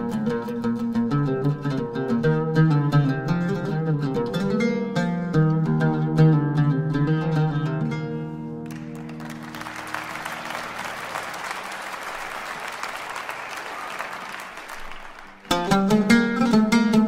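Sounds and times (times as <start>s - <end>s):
audience applause: 8.7s - 15.8s.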